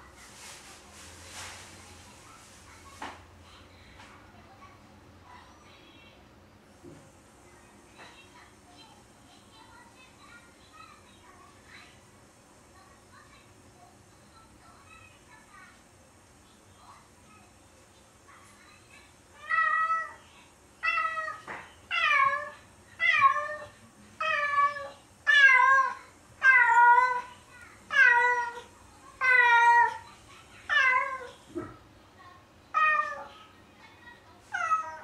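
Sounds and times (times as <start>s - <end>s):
cat meowing: 20.8s - 27.2s.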